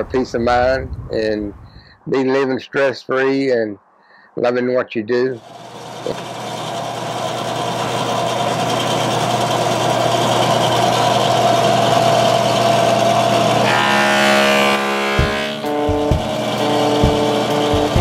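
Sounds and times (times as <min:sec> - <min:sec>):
table saw cutting wood: 0:05.4 - 0:18.0
guitar music: 0:13.6 - 0:18.0.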